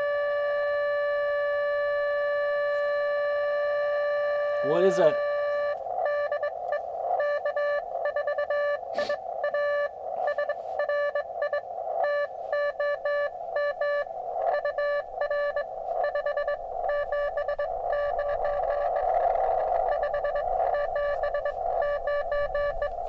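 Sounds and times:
morse code beeps: 2.8s - 23.0s
radio band noise hiss: 4.6s - 7.2s, 8.8s - 23.0s.

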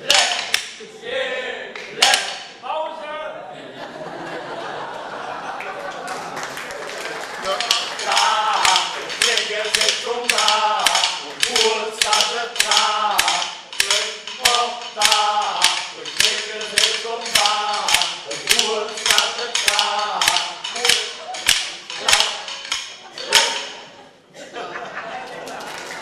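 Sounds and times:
wooden hand clappers clacking: 0.0s - 0.8s, 1.7s - 2.6s, 6.4s - 23.9s
men singing together: 7.5s - 23.7s.

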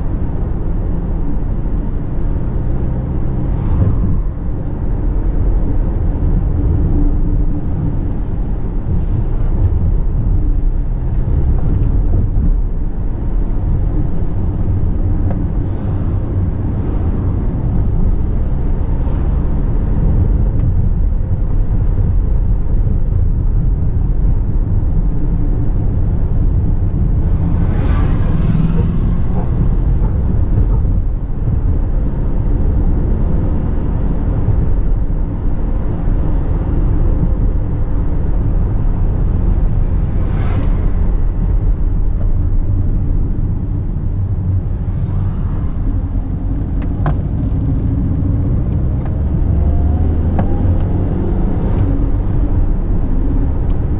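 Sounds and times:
car engine and road rumble: 0.0s - 53.9s.

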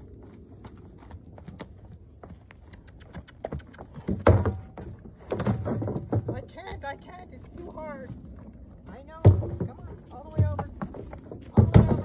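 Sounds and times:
light hoof steps: 0.0s - 12.0s
hoof thumping plastic barrel: 3.9s - 6.9s, 9.1s - 12.0s.

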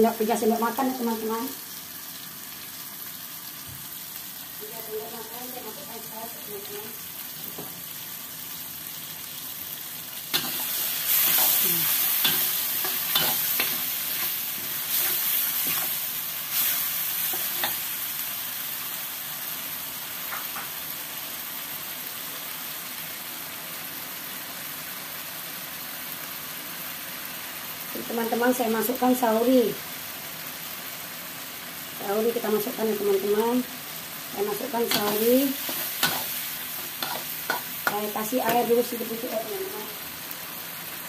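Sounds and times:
food sizzling in a wok: 0.0s - 41.0s
metal spatula scraping pan: 10.4s - 16.0s, 34.9s - 37.9s.

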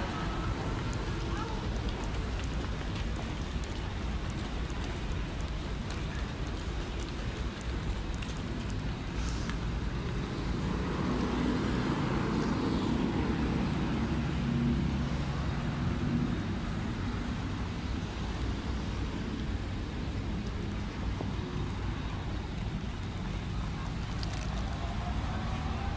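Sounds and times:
street traffic rumble: 0.0s - 25.9s
vehicle engine passing by: 10.2s - 17.3s.

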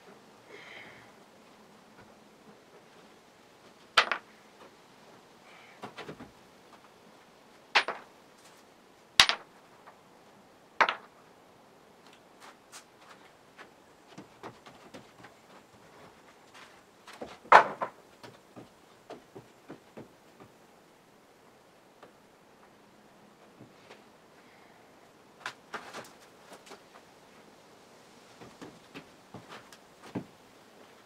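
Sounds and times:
wood creaking: 13.0s - 20.6s.

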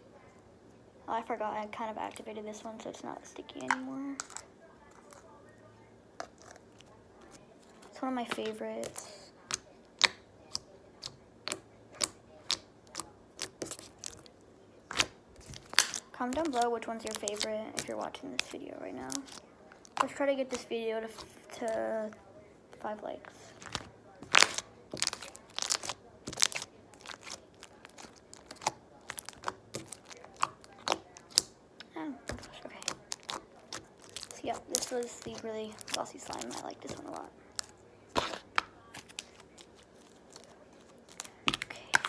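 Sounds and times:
slime clicking and popping: 8.4s - 14.3s, 14.9s - 18.5s, 23.6s - 42.0s.

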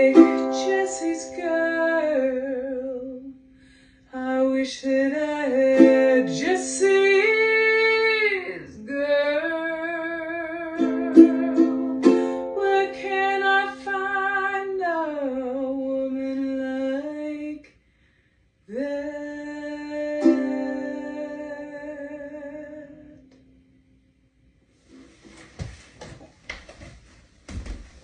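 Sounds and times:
ukulele strumming: 0.0s - 2.4s, 5.5s - 7.8s, 10.4s - 14.4s, 20.1s - 23.2s
woman singing long notes: 0.0s - 3.4s, 4.1s - 17.7s, 18.7s - 23.4s.

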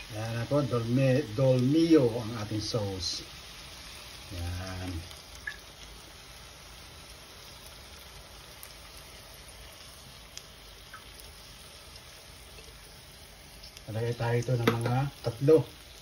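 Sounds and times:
meatballs sizzling in fat: 0.0s - 16.0s
fat popping: 14.6s - 15.0s.

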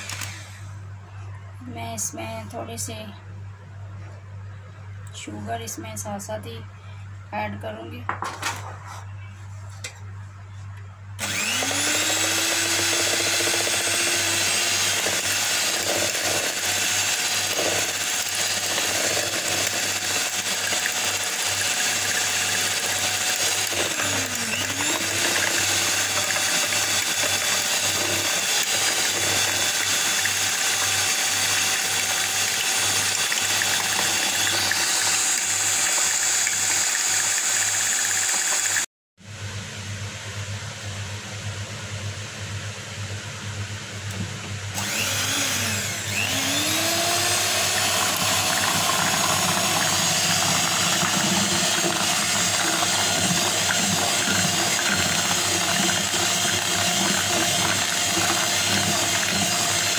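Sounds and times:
electric hand mixer whining: 0.0s - 0.7s, 11.2s - 38.9s, 44.7s - 59.9s.

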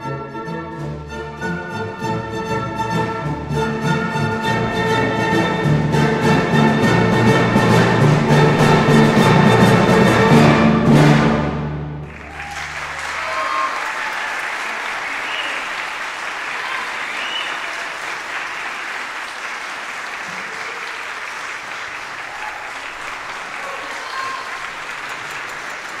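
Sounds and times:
audience applauding: 12.0s - 26.0s.

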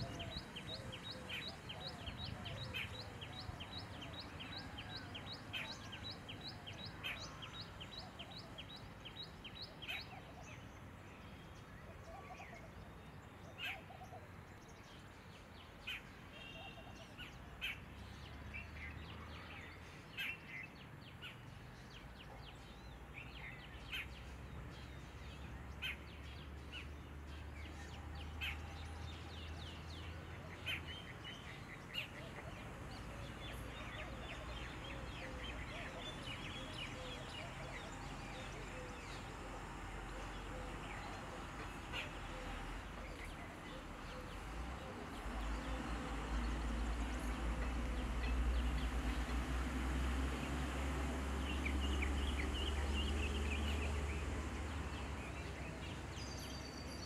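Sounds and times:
small birds calling: 0.0s - 57.0s.

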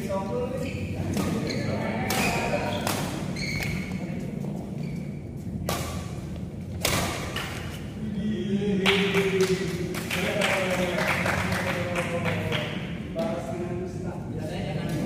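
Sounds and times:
racket hitting shuttlecock: 2.0s - 3.9s, 5.4s - 7.8s.

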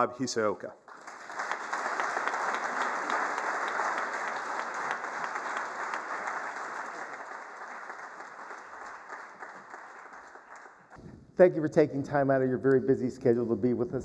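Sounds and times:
audience applauding: 0.9s - 11.0s.

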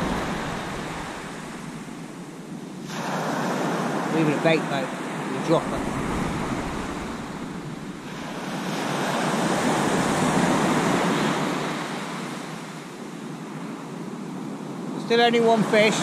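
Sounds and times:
waves breaking on shingle beach: 0.0s - 2.1s, 2.8s - 12.4s.

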